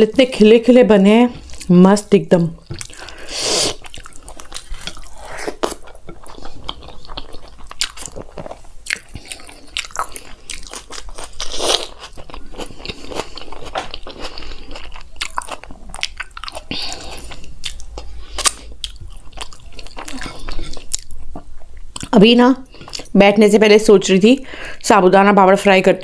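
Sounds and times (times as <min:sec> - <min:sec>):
close-miked chewing: 0:02.6 - 0:23.2.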